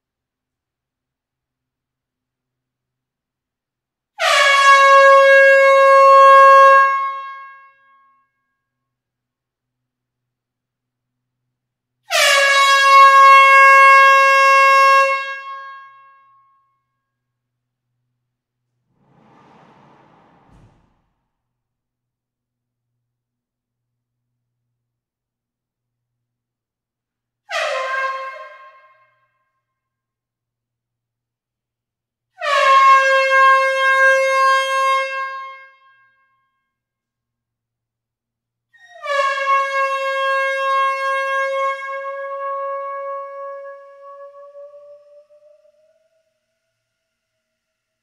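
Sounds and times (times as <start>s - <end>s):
air horn long blast: 4.2s - 7.7s, 12.1s - 16.0s, 32.4s - 35.8s
air horn blast: 18.9s - 21.2s.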